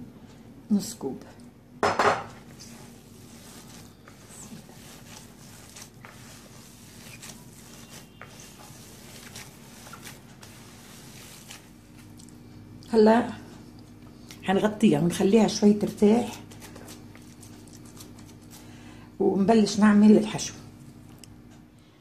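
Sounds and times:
hands kneading dough: 2.3s - 18.8s.

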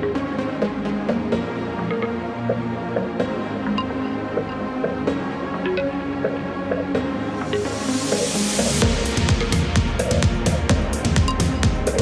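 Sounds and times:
electronic drum beat with hi-hats: 0.0s - 12.0s.

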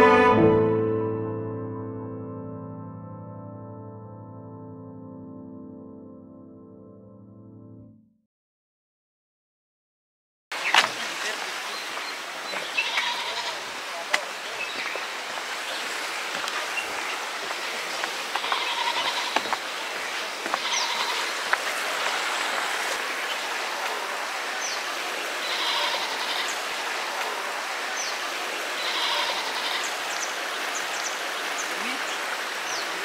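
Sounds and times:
river water rushing: 10.6s - 33.0s
bird calls and chirps: 14.4s - 15.1s, 20.6s - 21.2s, 28.0s - 28.2s, 29.6s - 33.0s.

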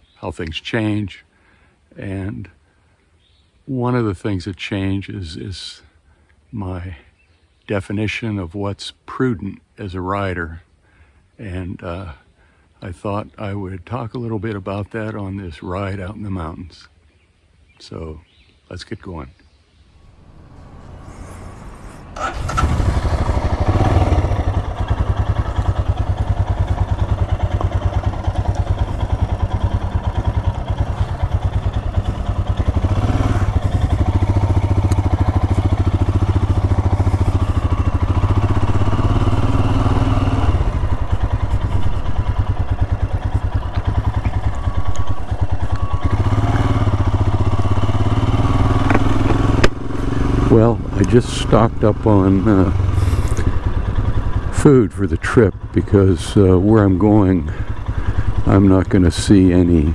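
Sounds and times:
motorcycle engine running: 20.0s - 59.9s.

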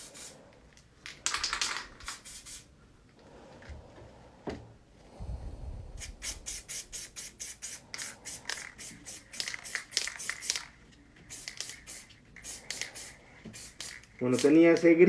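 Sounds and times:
spray paint can hissing: 0.0s - 0.4s, 1.4s - 2.7s, 6.0s - 10.7s, 11.3s - 14.6s.

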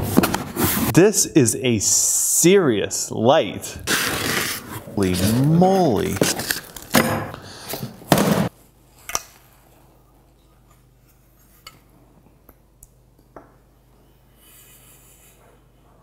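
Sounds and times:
rubbing and rustling of foam packaging: 0.0s - 0.9s, 3.8s - 7.0s.

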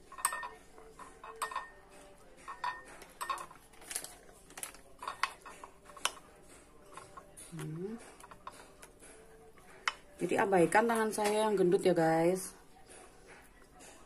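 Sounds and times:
spoon clinking against bowl: 0.0s - 10.2s
metal spoon stirring batter: 0.0s - 14.0s.

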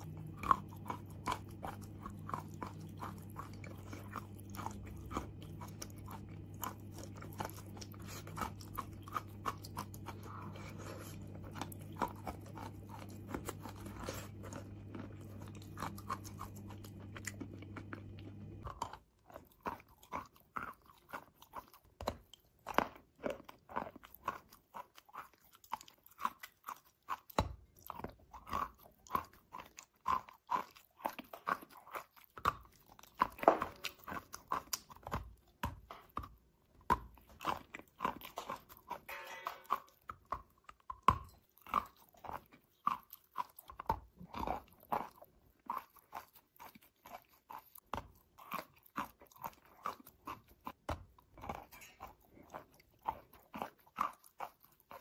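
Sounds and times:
steady low hum: 0.0s - 18.8s
chalk crunching being chewed: 0.0s - 55.0s.

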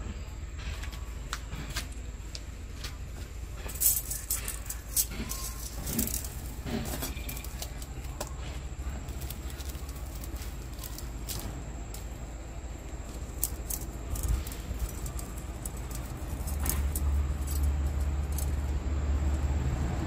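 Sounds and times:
steady low hum: 0.0s - 20.0s
metal parts clinking and rattling: 3.5s - 19.4s.

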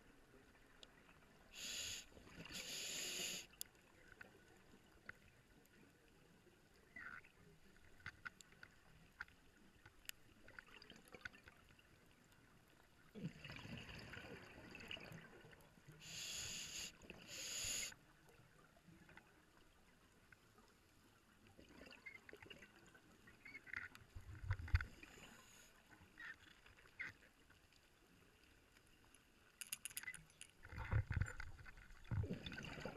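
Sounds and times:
hissing regulator breaths: 1.6s - 3.5s, 16.0s - 18.0s
underwater bubbles gurgling: 13.0s - 17.8s, 30.6s - 32.9s.

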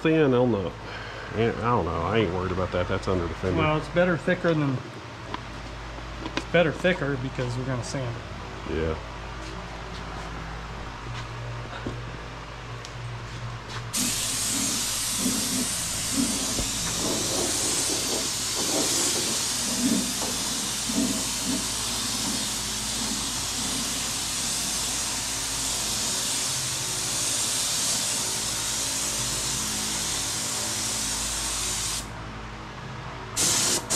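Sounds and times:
paint spray gun hissing: 13.9s - 32.1s, 33.4s - 33.9s.

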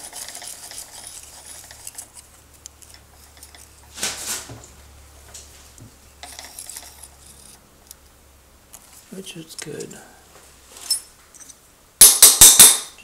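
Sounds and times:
metal scraping: 0.0s - 4.6s, 6.2s - 7.6s.

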